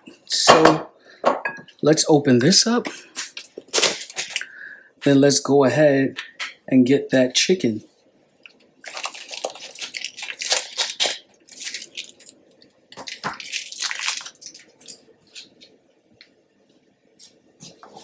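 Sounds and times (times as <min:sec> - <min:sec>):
plastic tub crinkling: 0:08.4 - 0:15.8.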